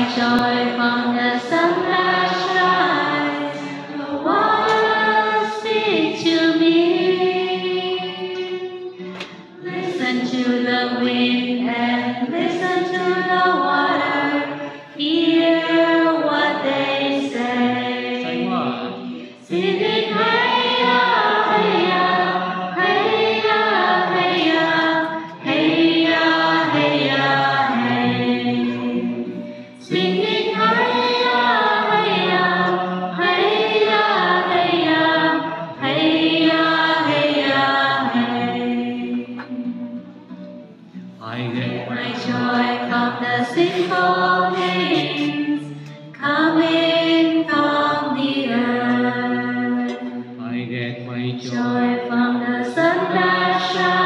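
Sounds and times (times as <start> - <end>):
group of voices singing: 0.0 - 40.2, 41.2 - 54.0.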